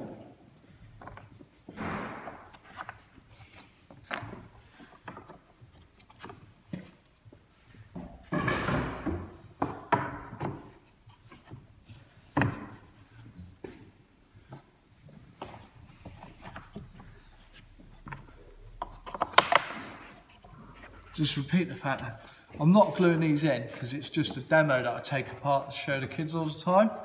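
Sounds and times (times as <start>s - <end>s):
sharp wooden knocks: 8.2s - 10.7s, 19.1s - 20.2s.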